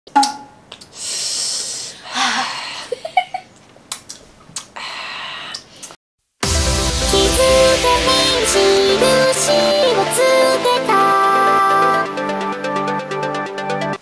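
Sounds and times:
music: 6.4s - 14.0s.

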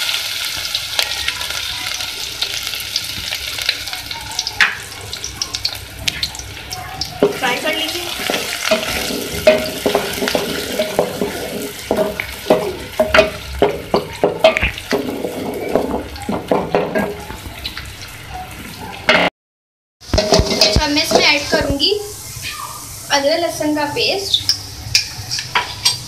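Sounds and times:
onions sizzling in oil: 0.0s - 19.2s, 20.0s - 26.0s
wooden spoon scraping a pot: 8.1s - 17.4s.

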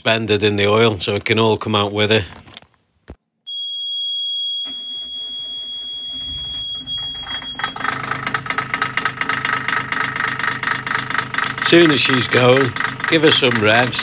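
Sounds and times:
high warning buzzer: 3.5s - 8.4s
diesel engine cranking and running: 4.7s - 14.0s.

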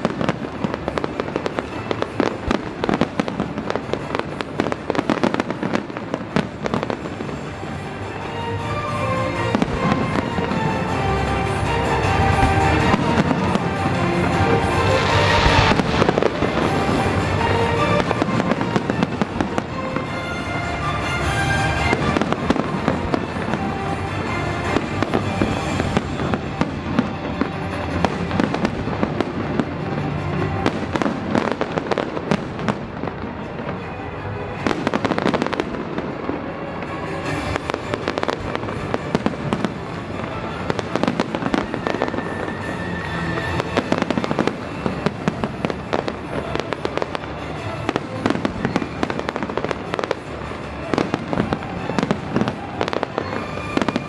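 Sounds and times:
fireworks bursting and crackling: 0.0s - 54.0s
music playing: 0.0s - 54.0s.

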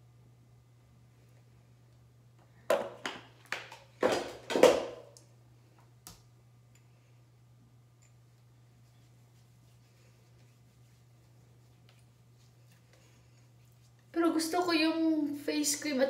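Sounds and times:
low steady hum: 0.0s - 16.0s
items knocking on a counter: 2.7s - 5.1s.

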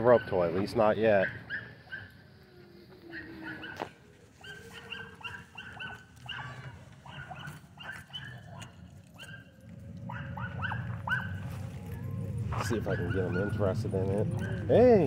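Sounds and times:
dog yipping: 1.2s - 2.1s, 3.1s - 9.5s, 10.1s - 11.5s, 12.8s - 14.8s.

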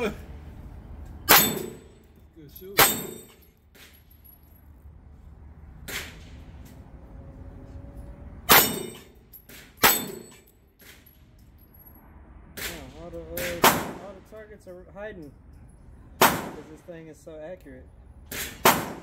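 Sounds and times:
steel target clanging: 1.2s - 4.1s, 8.5s - 11.0s
gunshots: 12.6s - 14.1s, 16.2s - 16.8s, 18.3s - 19.0s.

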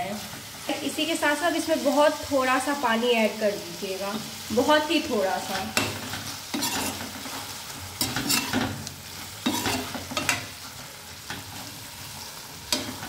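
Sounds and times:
vegetables sizzling in a pan: 0.0s - 13.0s
spoon scraping a pan: 5.4s - 13.0s.

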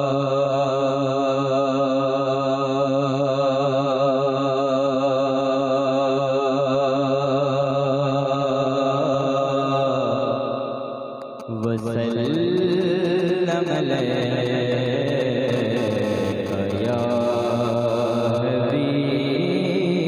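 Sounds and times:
man singing with vibrato: 11.2s - 20.0s.

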